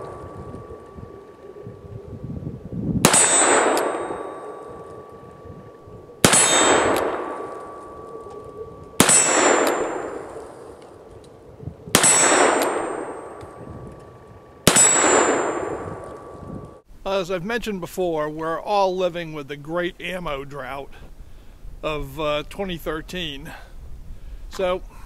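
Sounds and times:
steel target ringing: 0.0s - 1.6s, 3.0s - 11.1s, 11.9s - 16.8s.

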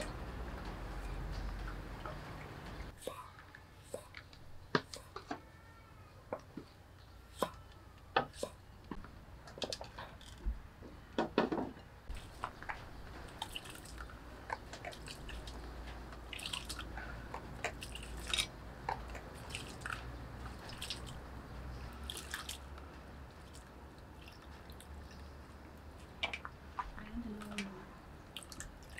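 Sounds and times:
wet squishing and dripping: 12.1s - 28.9s.

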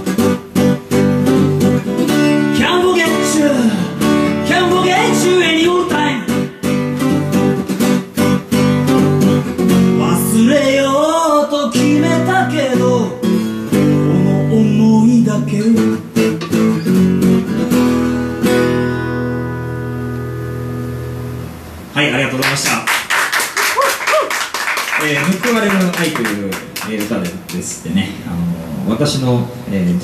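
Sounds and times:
acoustic guitar strumming: 0.0s - 21.9s
man singing: 2.5s - 6.6s, 10.0s - 16.1s.

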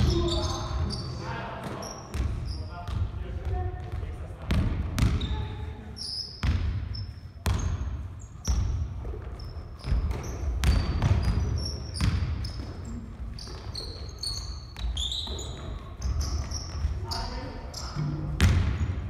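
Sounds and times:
sneakers squeaking: 0.0s - 19.0s
basketball bouncing on wood floor: 1.6s - 5.4s, 6.4s - 14.1s, 18.4s - 18.9s.

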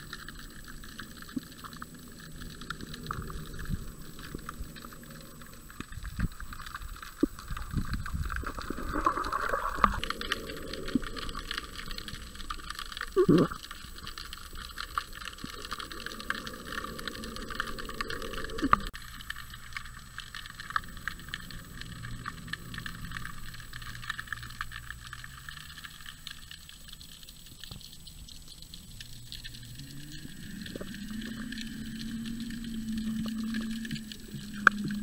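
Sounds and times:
low hum: 0.0s - 26.5s, 28.2s - 35.0s
underwater crackle of clicks: 0.0s - 35.0s.

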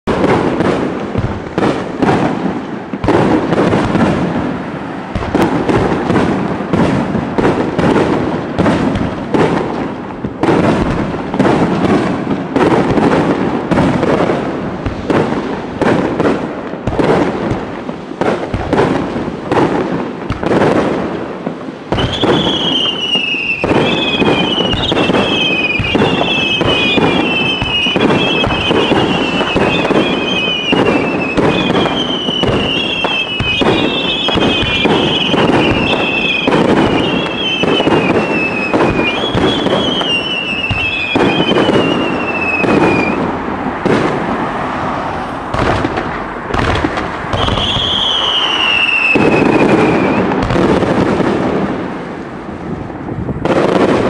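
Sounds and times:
fireworks bursting: 0.0s - 54.0s
falling firework whistles: 21.9s - 43.4s, 46.6s - 50.8s.

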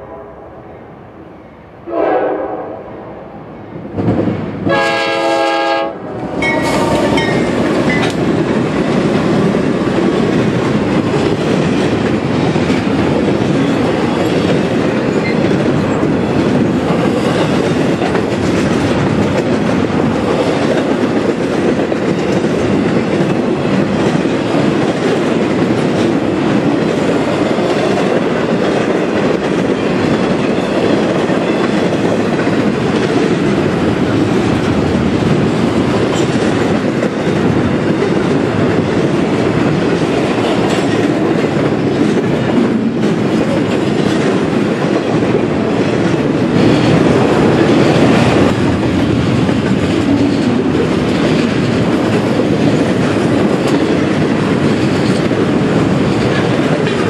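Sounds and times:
train rolling past: 0.0s - 57.0s
locomotive air horn blast: 1.8s - 3.2s, 4.7s - 7.3s
train wheel clatter: 6.2s - 57.0s.

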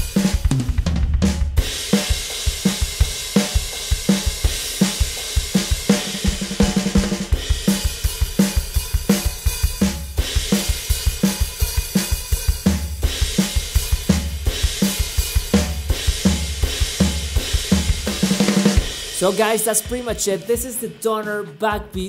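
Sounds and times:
electronic drum kit groove: 0.0s - 22.0s.

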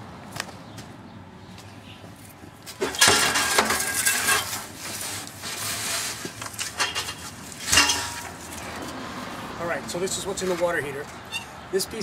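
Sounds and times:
metal parts scraping and clattering: 2.8s - 8.7s.

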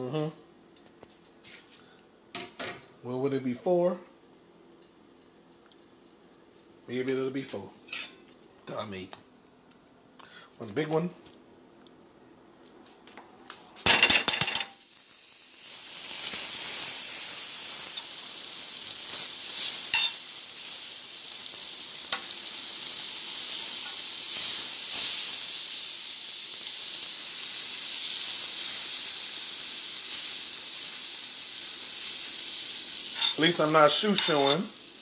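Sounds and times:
butter sizzling in frying pan: 14.8s - 35.0s.

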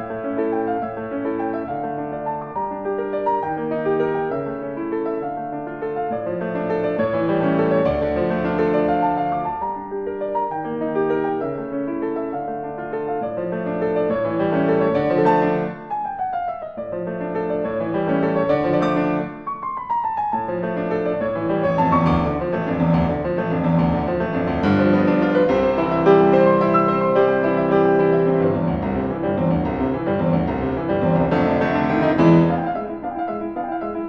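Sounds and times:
solo piano music: 0.0s - 34.0s.

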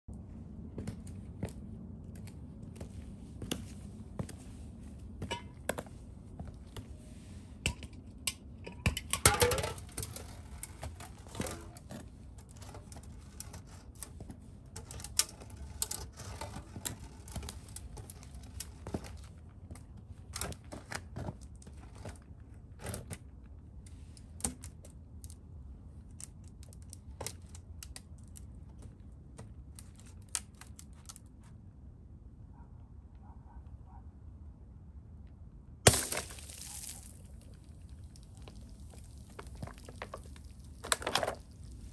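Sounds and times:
beer can crunching underfoot: 35.9s - 41.9s.

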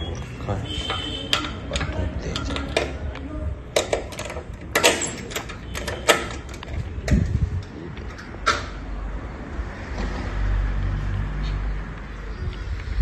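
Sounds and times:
metal door bolt clicking: 0.7s - 7.3s, 8.0s - 8.8s.

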